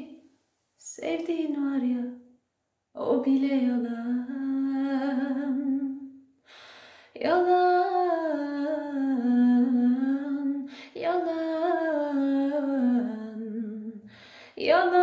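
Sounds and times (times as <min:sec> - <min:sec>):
woman singing unaccompanied: 0:00.8 - 0:02.2, 0:03.0 - 0:06.1, 0:07.2 - 0:15.0
singer breathing in: 0:06.4 - 0:07.1.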